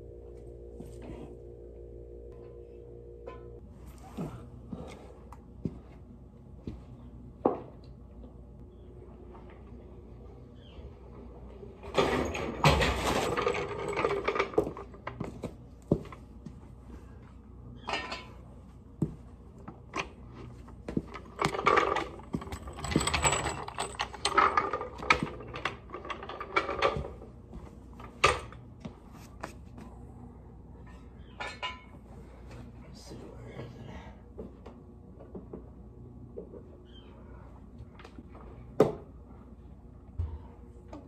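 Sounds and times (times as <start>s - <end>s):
floor jack rattling and clanking: 11.8s - 15.0s, 20.9s - 27.2s.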